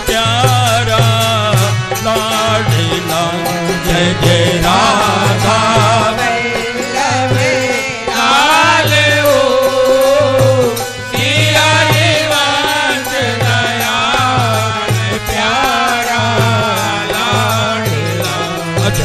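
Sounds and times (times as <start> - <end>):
steady drum beat: 0.1 - 9.6
chant melody with wavering notes: 1.8 - 18.7.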